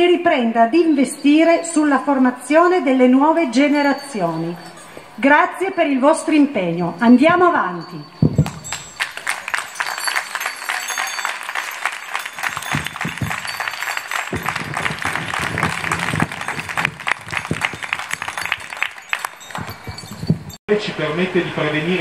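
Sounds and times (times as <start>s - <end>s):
crowd applauding: 8.4s - 20.4s.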